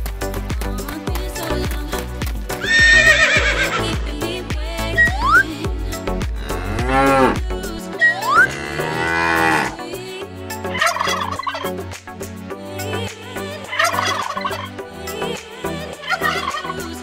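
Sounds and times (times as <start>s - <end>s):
background music: 0.0s - 17.0s
cow mooing: 6.4s - 7.4s, 8.2s - 9.8s.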